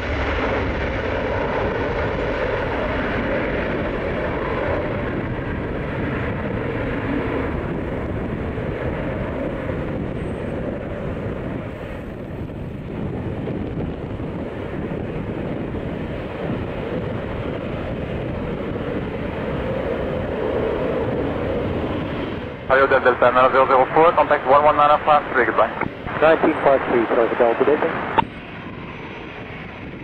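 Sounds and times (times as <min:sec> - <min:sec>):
jet engines at takeoff: 0:00.0 - 0:30.0.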